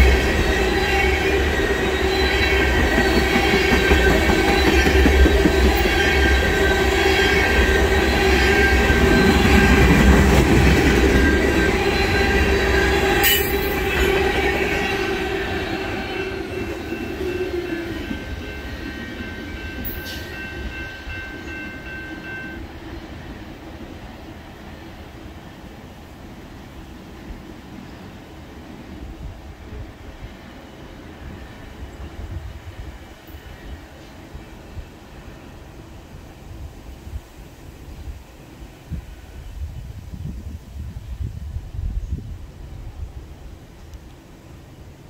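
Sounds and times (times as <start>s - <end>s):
high wheel squeal: 0.0s - 10.1s
train wheels rumbling on rails: 0.0s - 45.0s.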